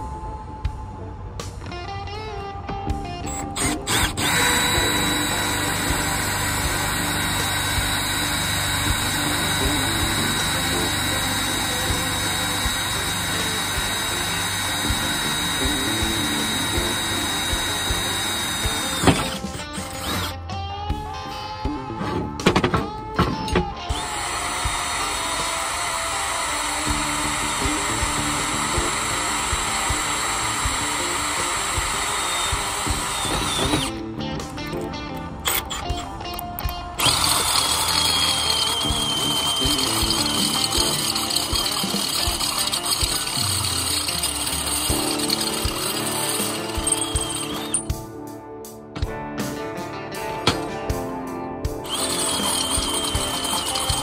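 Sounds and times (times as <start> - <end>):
electric drill boring through steel: 3.2 - 20.4, 23.9 - 34.0, 35.4 - 48.0, 51.8 - 54.0.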